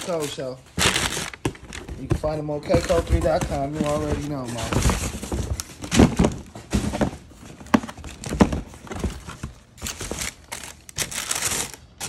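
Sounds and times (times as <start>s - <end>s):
cardboard box lid knocking and scraping: 1.9s - 9.2s.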